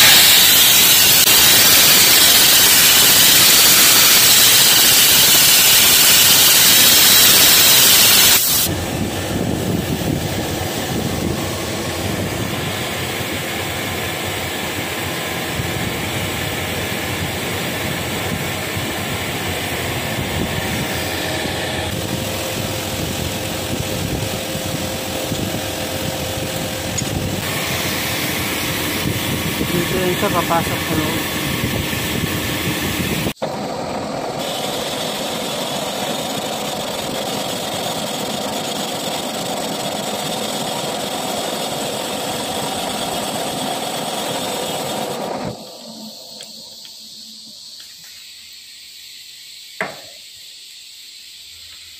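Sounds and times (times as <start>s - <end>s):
spray-welding gun hissing: 0.0s - 33.4s, 45.6s - 51.9s
machine humming: 0.0s - 47.7s.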